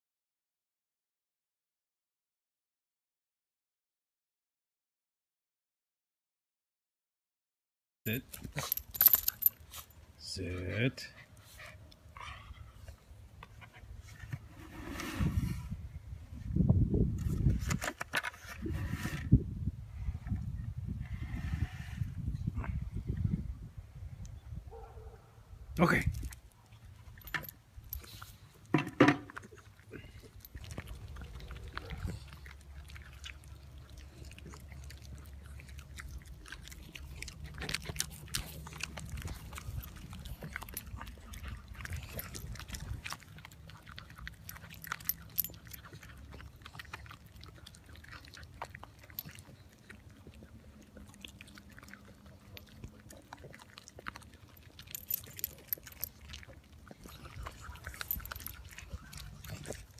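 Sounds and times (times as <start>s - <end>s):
dogs chewing and licking: 26.1s - 59.9s.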